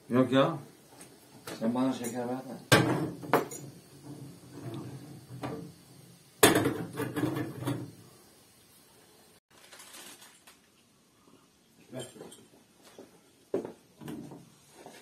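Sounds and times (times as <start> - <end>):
glasses and teaspoon clinking: 3.3 - 3.8.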